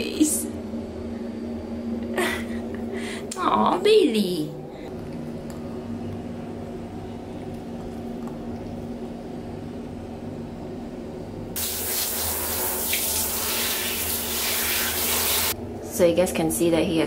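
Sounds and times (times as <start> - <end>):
low steady hum: 0.0 - 11.7
shower water spraying on dog: 11.6 - 15.6.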